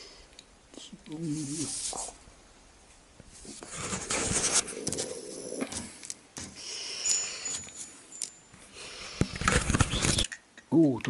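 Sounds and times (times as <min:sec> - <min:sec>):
paper sheet rustling and crinkling: 0:03.2 - 0:06.5.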